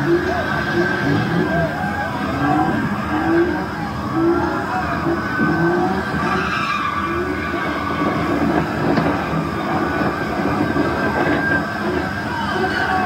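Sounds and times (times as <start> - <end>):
car engine running: 0.0 - 13.0
car tires screeching: 0.0 - 13.0.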